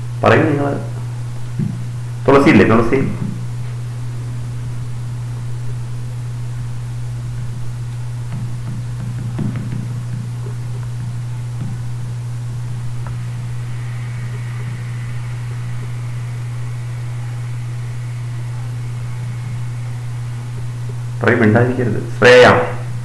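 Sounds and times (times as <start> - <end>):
low hum: 0.0 - 23.0
background hiss: 8.0 - 23.0.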